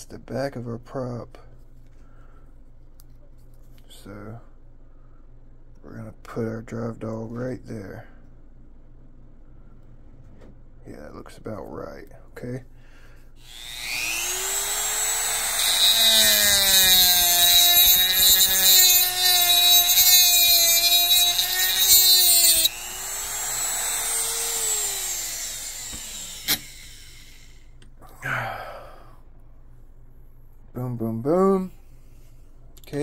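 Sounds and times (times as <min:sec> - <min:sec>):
rotary tool whine: 0:13.4 - 0:27.8
metal grinding: 0:13.6 - 0:27.6.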